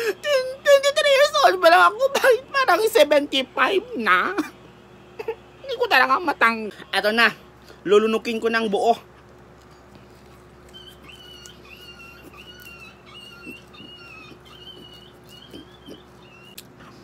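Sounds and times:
low steady hum: 0.0s - 17.0s
bird chirping faintly: 10.7s - 16.7s.

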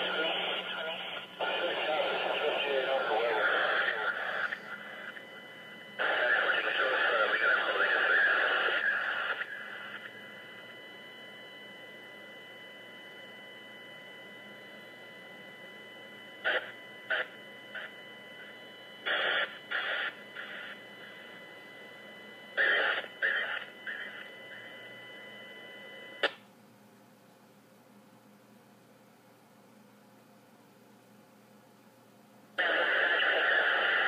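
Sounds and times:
radio static: 0.0s - 10.3s, 16.4s - 21.4s, 22.4s - 25.0s, 32.6s - 34.0s
faint steady whine: 0.0s - 34.0s
static squelch bursts: 6.0s - 10.0s, 16.4s - 17.9s, 19.0s - 21.2s, 22.6s - 24.6s, 32.6s - 34.0s.

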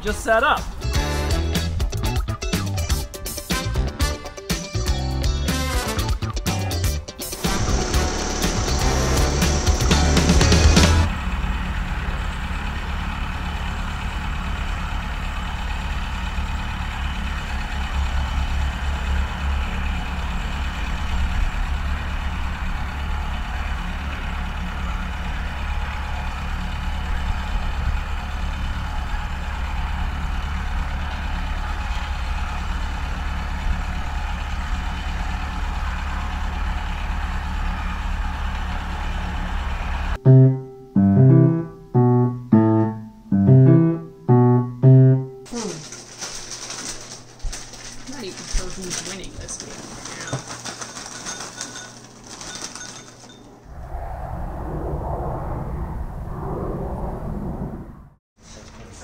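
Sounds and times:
tractor diesel engine running: 6.7s - 40.2s.

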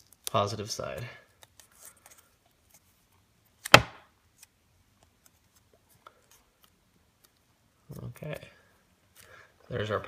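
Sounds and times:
sharp knock: 3.7s - 4.0s.

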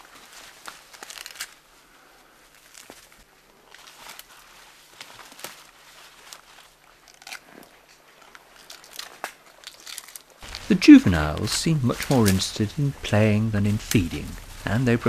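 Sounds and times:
twigs snapping and crackling: 0.0s - 1.7s, 2.4s - 14.9s
leaves rustling: 0.0s - 15.0s.

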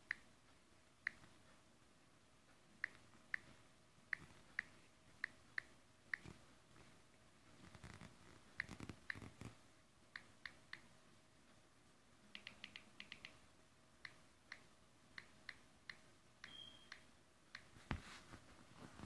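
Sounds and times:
phone keyboard tap clicks: 12.4s - 13.4s.

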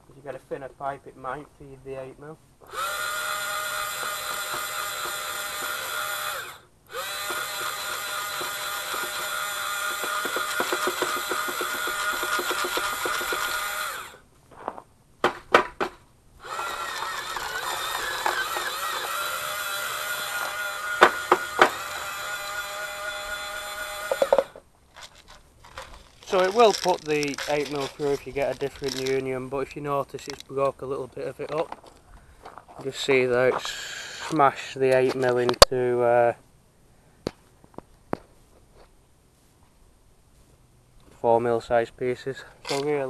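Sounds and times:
electric motor whining: 2.6s - 14.2s, 16.4s - 24.6s, 25.8s - 29.2s
pellets crackling being crushed: 24.9s - 29.3s.

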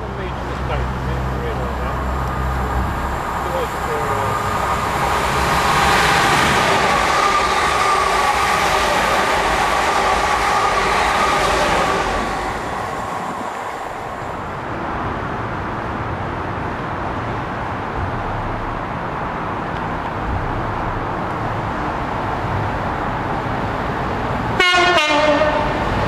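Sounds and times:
train whine: 0.0s - 16.4s
train passing at speed: 0.0s - 26.0s.

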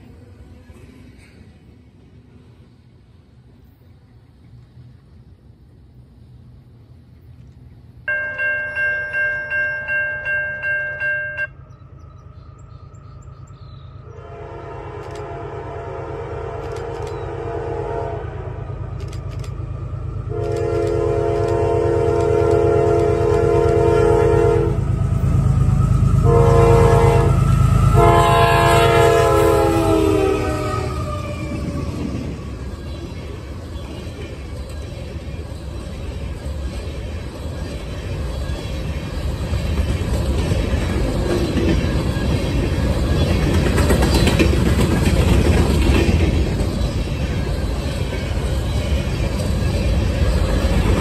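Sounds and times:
train rumble: 0.0s - 51.0s
pulsing crossing bell: 8.1s - 12.0s
train air horn: 14.1s - 18.8s, 20.3s - 25.0s, 26.0s - 31.9s.

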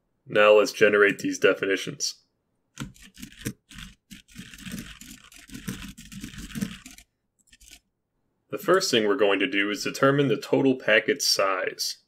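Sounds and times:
computer keyboard typing: 2.8s - 7.9s.

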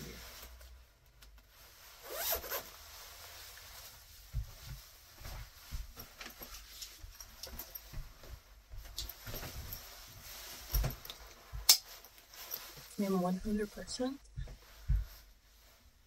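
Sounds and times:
zipper pulled: 2.0s - 2.9s
soft thumps of handling: 4.1s - 13.6s, 14.3s - 15.8s.

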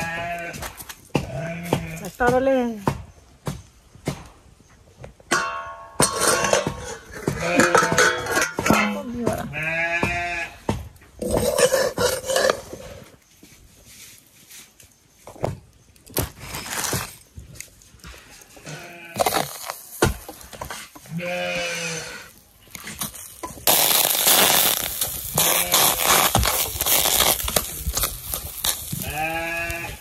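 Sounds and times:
goats bleating: 0.0s - 0.7s, 7.2s - 8.1s, 9.5s - 10.6s, 18.6s - 19.3s, 21.0s - 22.4s, 24.7s - 26.3s, 28.9s - 30.0s.

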